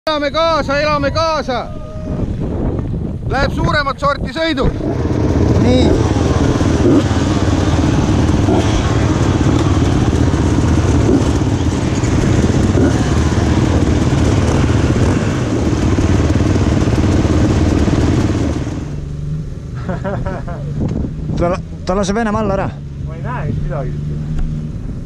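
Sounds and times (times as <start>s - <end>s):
many dirt bike engines idling: 3.3s - 24.4s
engine revving: 4.6s - 19.8s, 20.7s - 25.0s.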